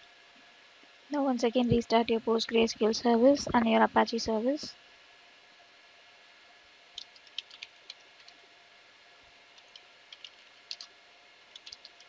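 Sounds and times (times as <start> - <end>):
keyboard key clicks: 11.6 - 12.0.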